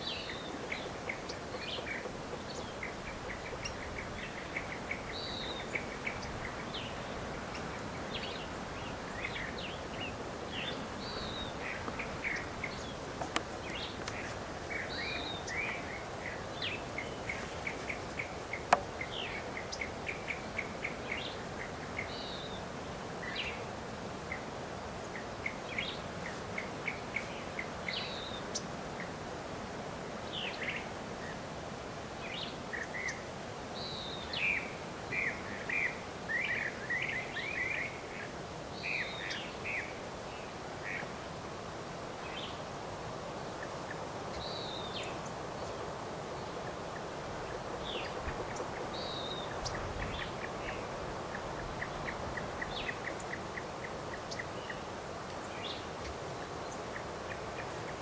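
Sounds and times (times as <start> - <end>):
birds chirping: 0.0 - 23.7, 43.5 - 58.0
outdoor hiss: 0.0 - 58.0.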